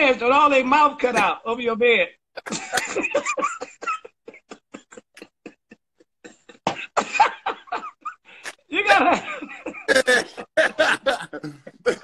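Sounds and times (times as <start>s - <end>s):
men laughing hard: 2.4s - 12.0s.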